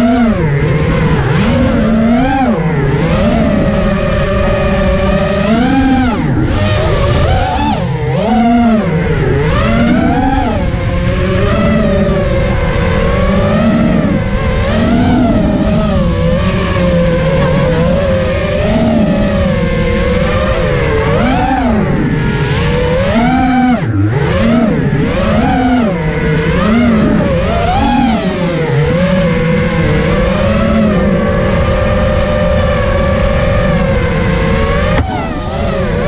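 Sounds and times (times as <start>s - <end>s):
quadcopter motors whining: 0.0s - 36.0s.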